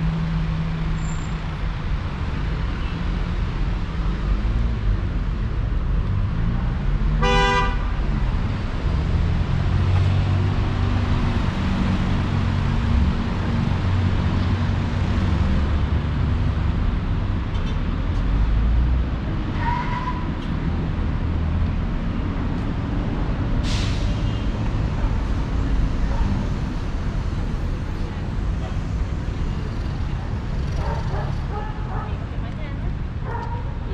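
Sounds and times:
vehicle engines running: 0.0s - 33.9s
vehicle horn toot: 7.2s - 7.9s.

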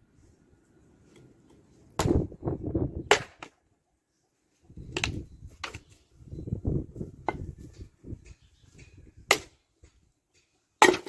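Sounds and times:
hatchet chopping firewood: 1.9s - 2.3s, 3.0s - 3.6s, 9.2s - 9.6s, 10.8s - 11.0s.

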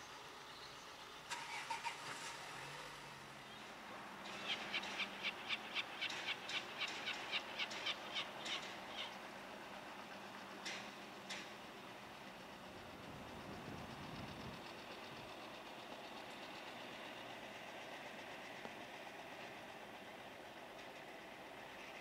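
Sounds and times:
lorry engine running: 0.0s - 22.0s
sharp ticks: 4.3s - 9.1s.

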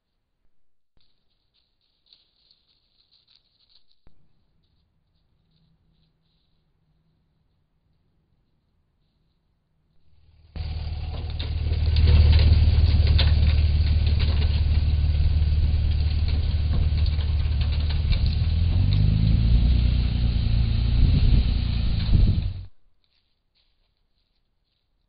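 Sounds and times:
truck engine running: 10.3s - 22.8s.

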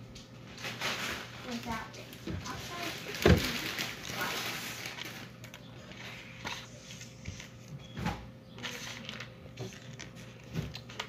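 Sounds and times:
cereal crunching: 2.7s - 7.0s.

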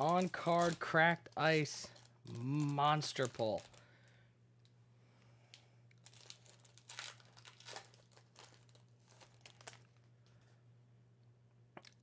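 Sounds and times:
foil wrapper crinkling: 0.0s - 4.2s, 6.0s - 10.5s.

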